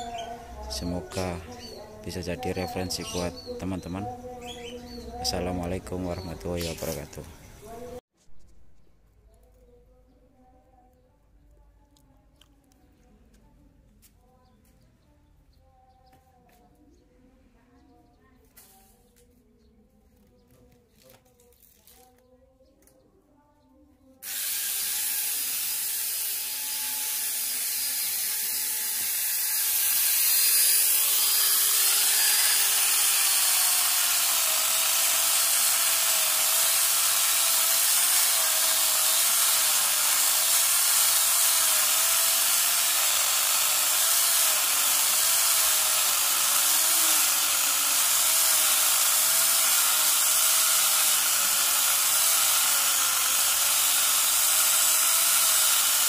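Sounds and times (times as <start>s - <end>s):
grinder chainsaw cutting log: 24.2s - 56.0s.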